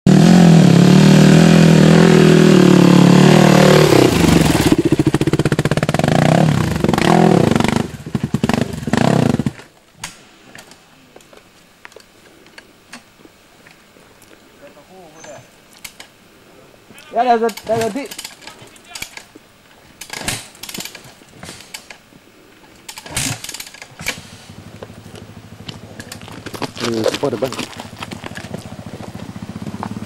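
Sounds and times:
dirt bike engine revving: 0:00.1 - 0:09.7, 0:22.9 - 0:30.0.

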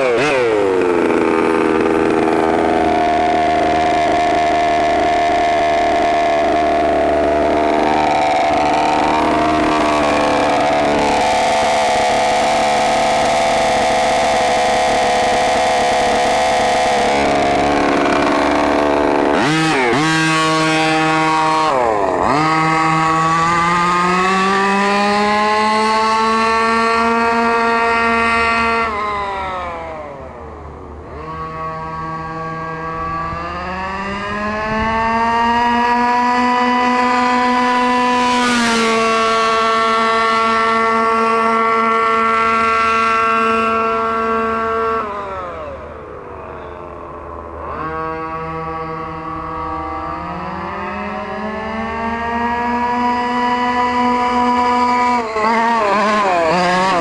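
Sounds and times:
small two-stroke engine revving: 0:00.0 - 0:57.0.

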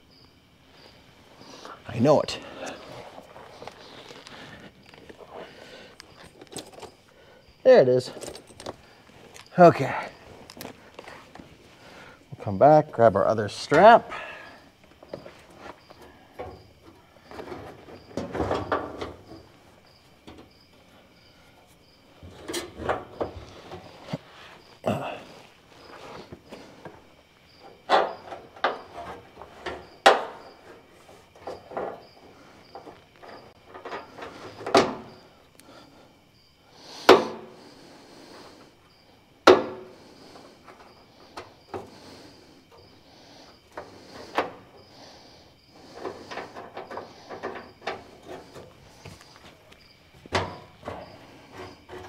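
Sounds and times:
cricket chirping: 0:00.0 - 0:52.0
metal strap clinking and rattling: 0:06.0 - 0:07.0, 0:08.1 - 0:09.5
metal knocks and clunks: 0:15.0 - 0:19.5, 0:22.2 - 0:24.2, 0:27.6 - 0:30.8, 0:31.4 - 0:35.2, 0:39.4 - 0:40.0, 0:50.2 - 0:52.0.

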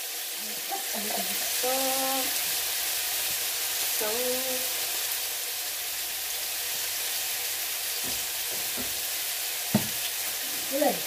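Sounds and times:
vegetables sizzling in a pan: 0:00.0 - 0:11.0
soft knocks: 0:08.0 - 0:09.0, 0:09.7 - 0:10.0.

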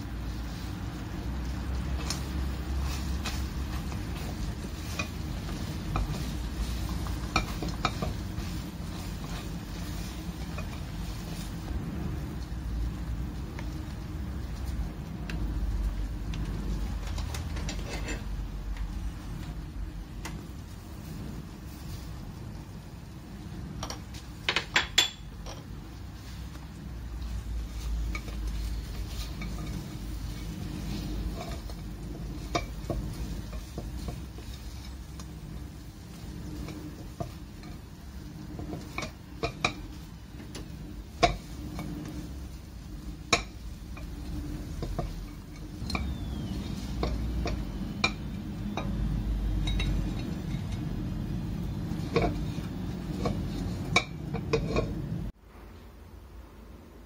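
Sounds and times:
steady low rumble: 0:00.0 - 0:24.3
utensils clinking against cookware: 0:01.7 - 0:11.6, 0:17.5 - 0:18.4, 0:23.8 - 0:25.8, 0:27.7 - 0:35.3, 0:36.5 - 0:42.4, 0:43.2 - 0:51.0, 0:51.6 - 0:55.1.

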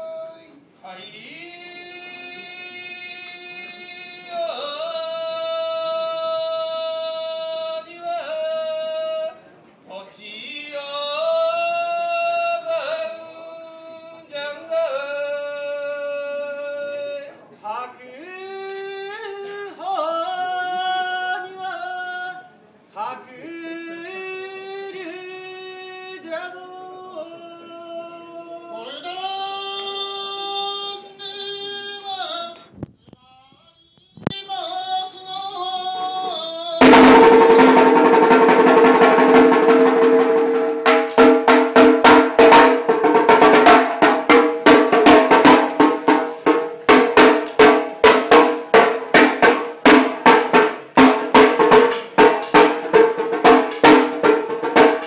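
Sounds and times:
man chanting unaccompanied: 0:00.0 - 0:32.7.

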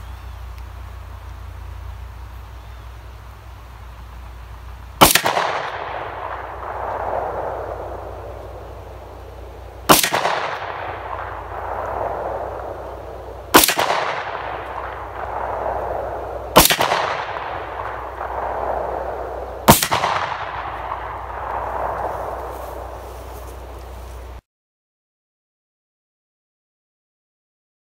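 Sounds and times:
pistol shots: 0:05.0 - 0:09.2, 0:09.8 - 0:22.9
rolling echo of gunshots: 0:05.0 - 0:23.0.

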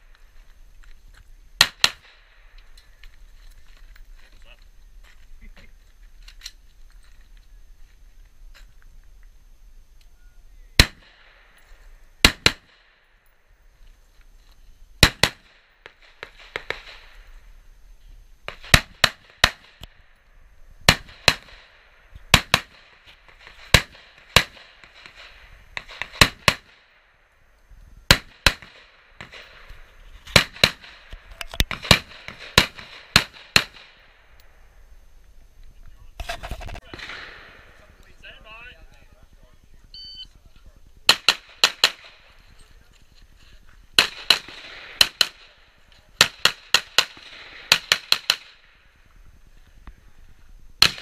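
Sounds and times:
gunshots: 0:01.6 - 0:02.5, 0:10.8 - 0:11.6, 0:12.2 - 0:13.1, 0:15.0 - 0:17.2, 0:18.5 - 0:20.0, 0:20.8 - 0:27.1, 0:28.1 - 0:34.2, 0:36.2 - 0:38.0, 0:41.0 - 0:42.4, 0:44.0 - 0:48.8, 0:50.8 - 0:51.0.

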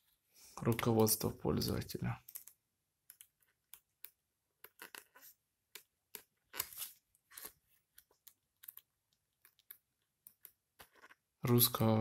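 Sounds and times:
paper pages rustling: 0:06.1 - 0:08.9.

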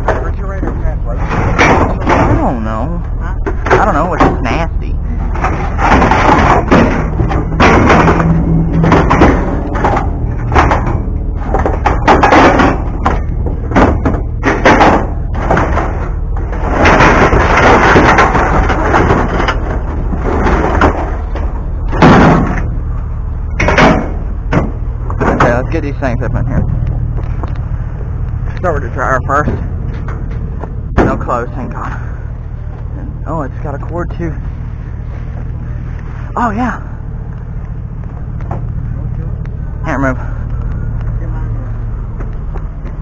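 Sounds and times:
scrap metal clanking: 0:00.0 - 0:04.5, 0:05.1 - 0:22.9
steady low hum: 0:00.0 - 0:43.0.

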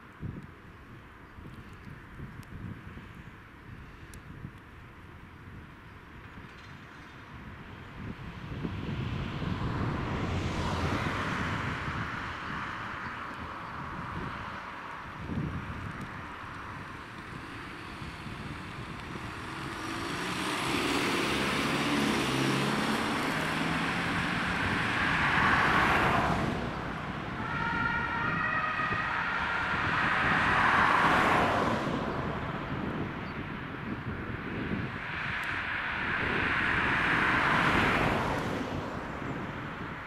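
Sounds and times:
road traffic passing: 0:00.0 - 0:40.0
two-tone siren: 0:25.0 - 0:31.6.

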